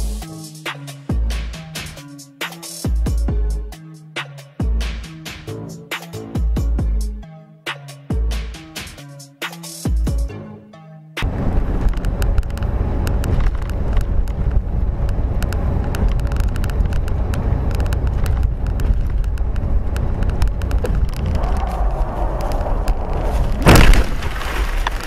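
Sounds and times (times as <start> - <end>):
road rumble: 11.2 - 25.0
small clicks and rattles: 11.8 - 21.6
loud thump: 23.2 - 24.7.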